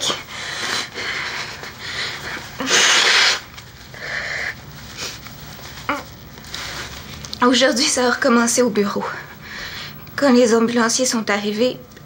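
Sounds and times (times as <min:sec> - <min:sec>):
sniffles: 0:00.0 - 0:05.2.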